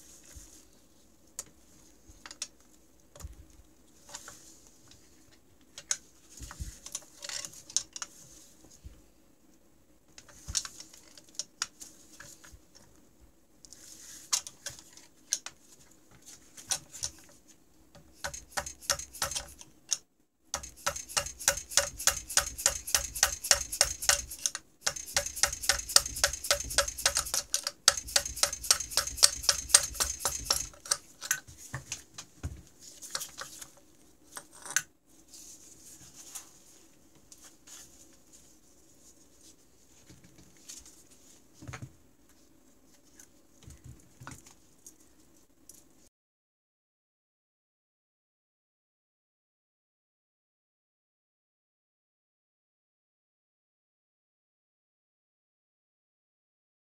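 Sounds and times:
scattered clicks and knocks: 18.2s - 20.0s, 20.6s - 31.4s
rapid metallic clicking: 20.6s - 31.0s.

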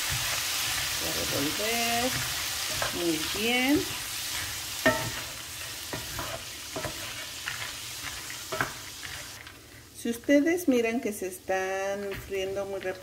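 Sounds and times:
peanuts sizzling in oil: 0.0s - 13.0s
wooden spoon clacking and scraping: 0.1s - 9.5s.

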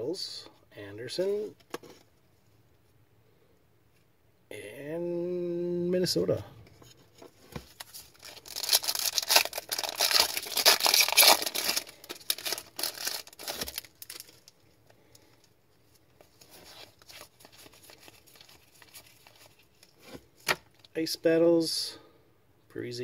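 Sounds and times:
cards rustling: 7.0s - 14.6s, 15.9s - 20.9s
foil wrapper tearing and crinkling: 7.7s - 14.6s.

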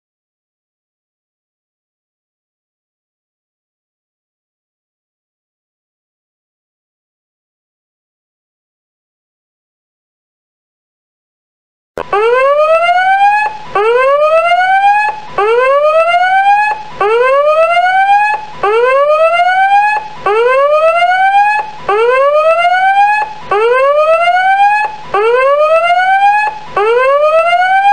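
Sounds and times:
whooping electronic alarm: 12.0s - 27.9s.

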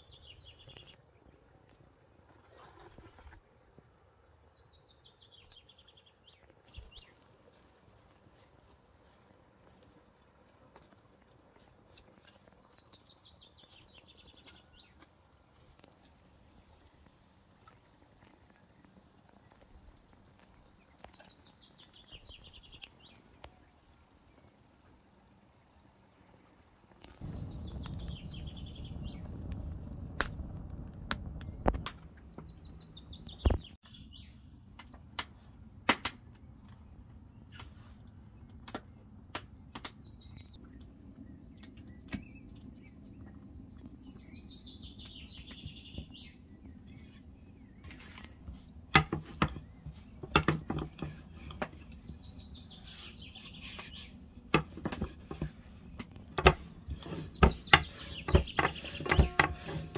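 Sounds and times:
wood fire crackling in a stove: 6.3s - 32.6s, 34.6s - 59.9s
birds chirping: 20.4s - 24.5s, 27.1s - 29.5s, 31.3s - 34.4s, 38.4s - 59.9s.

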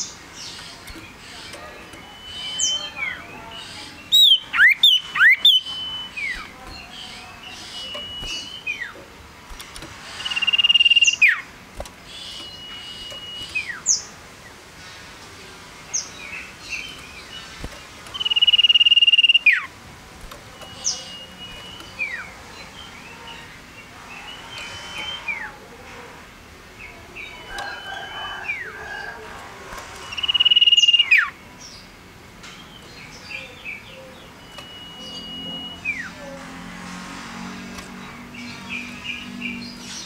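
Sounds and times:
swooping bird notes: 4.0s - 14.2s, 16.4s - 23.6s
bird whistling: 10.2s - 11.5s, 18.2s - 19.7s, 30.1s - 31.3s, 34.4s - 36.2s.

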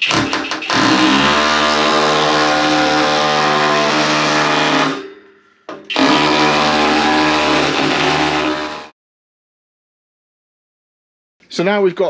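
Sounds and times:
hammer drill buzzing: 0.0s - 5.1s, 5.9s - 8.9s.

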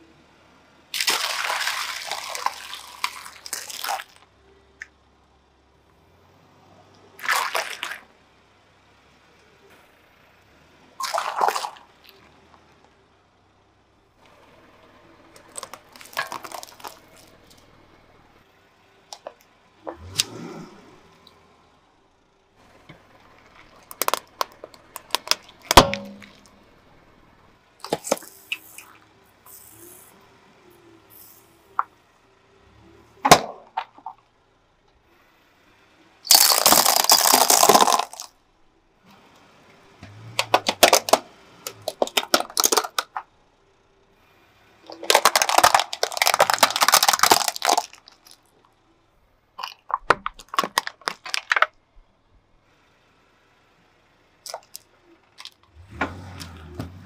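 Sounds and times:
tyre crushing small objects: 1.0s - 4.3s, 15.3s - 17.7s, 22.8s - 26.6s, 27.8s - 30.0s, 36.3s - 38.3s, 40.1s - 43.2s, 44.8s - 48.6s, 49.6s - 51.8s, 54.4s - 57.0s
crackles and snaps: 15.3s - 17.8s, 22.6s - 26.7s, 36.3s - 38.3s, 40.2s - 43.3s, 44.8s - 48.8s, 49.6s - 52.1s, 54.4s - 55.8s
box crushed with loud crunch: 36.3s - 38.3s, 45.0s - 48.0s.

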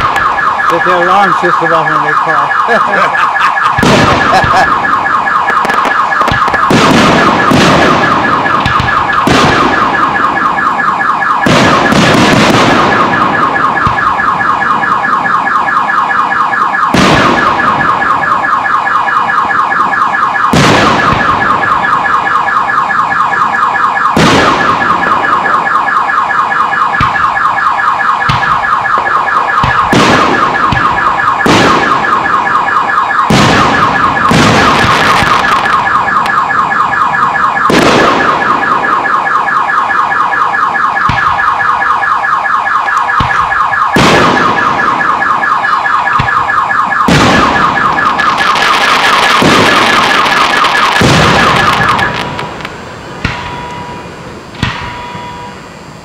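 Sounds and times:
car alarm warbling: 0.0s - 56.0s
firework shells bursting: 2.8s - 10.3s, 33.2s - 36.4s.

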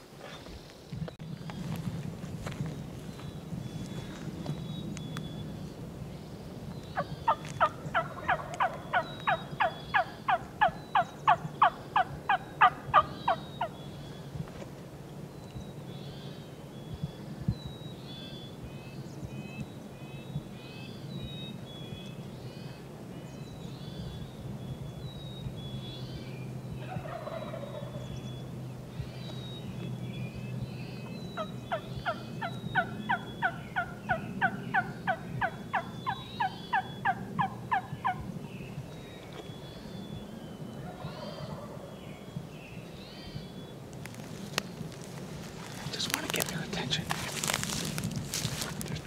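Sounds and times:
songbird chirping: 0.2s - 49.0s
wild turkey yelps: 7.0s - 13.8s, 26.8s - 28.0s, 31.4s - 38.2s, 40.8s - 42.0s.

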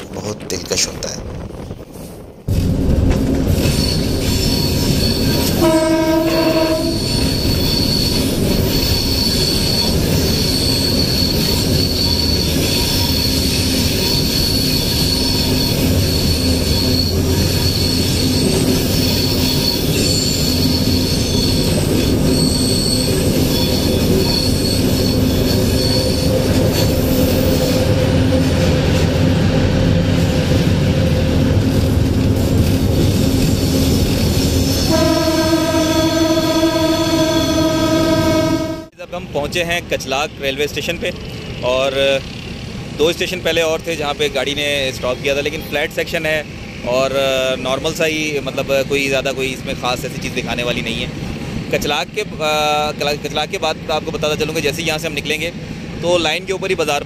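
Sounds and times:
diesel locomotive rumble: 0.0s - 57.0s
high wheel squeal: 3.5s - 28.7s, 33.2s - 38.9s
train horn blast: 5.4s - 7.2s, 34.7s - 39.0s.

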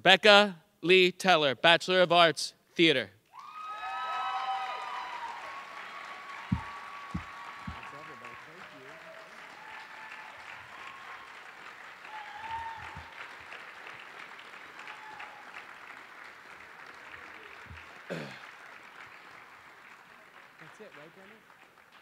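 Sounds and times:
cheers and calls: 3.3s - 13.7s, 14.6s - 15.8s
audience applauding: 3.3s - 22.0s.

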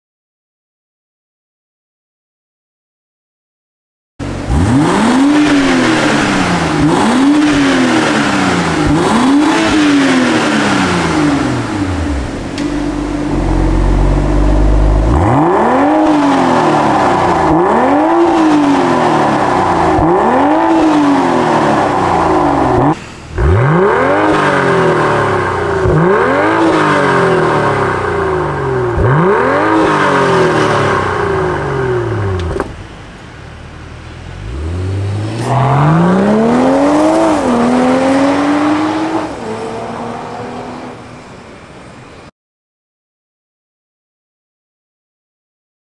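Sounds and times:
car engine revving: 4.2s - 41.2s
deep exhaust rumble: 10.2s - 20.4s, 21.1s - 26.4s.

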